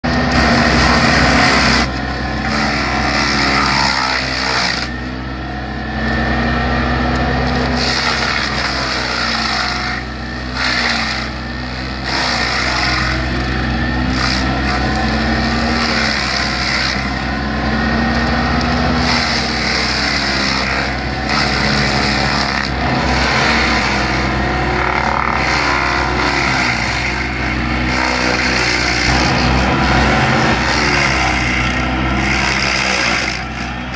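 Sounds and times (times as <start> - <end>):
excavator engine running: 0.0 - 33.9
stump grinder cutter whine: 0.0 - 33.9
wood chipping: 14.0 - 17.2, 18.0 - 33.9.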